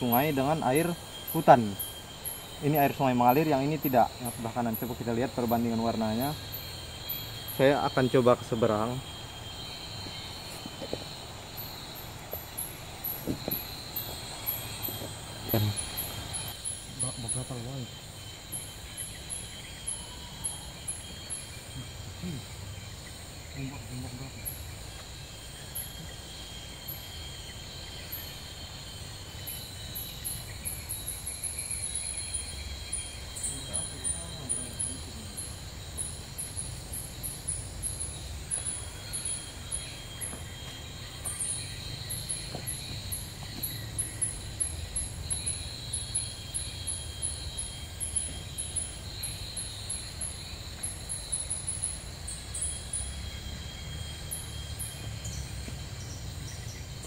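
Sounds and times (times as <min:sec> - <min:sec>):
rapid high chirps: 0:00.0 - 0:22.5
faint insect drone: 0:00.0 - 0:57.0.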